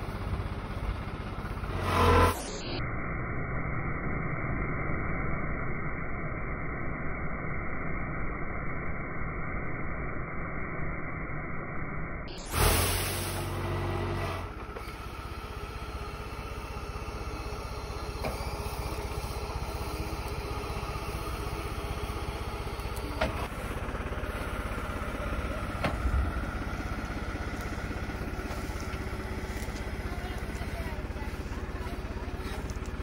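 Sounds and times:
engine running steadily: 0:00.0 - 0:02.9, 0:12.3 - 0:33.0.

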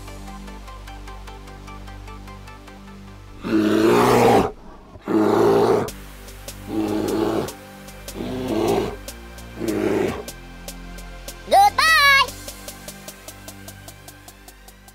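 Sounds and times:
background music: 0:00.0 - 0:14.9
rough animal calls: 0:03.4 - 0:05.9, 0:06.7 - 0:07.6, 0:08.2 - 0:09.0, 0:09.6 - 0:10.3.

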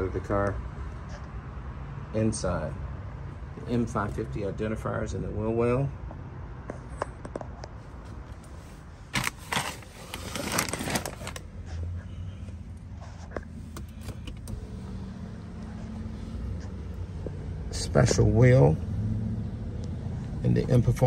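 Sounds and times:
clicks and knocks in car cabin: 0:13.4 - 0:14.6.

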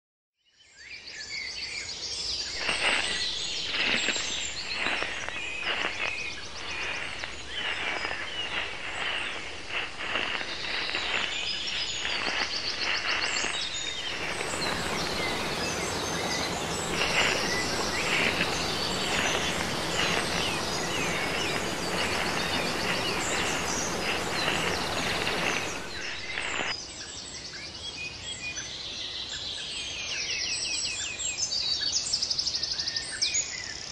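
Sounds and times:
birds chirping and trilling: 0:02.1 - 0:26.8
dense insect hum: 0:02.6 - 0:26.7.

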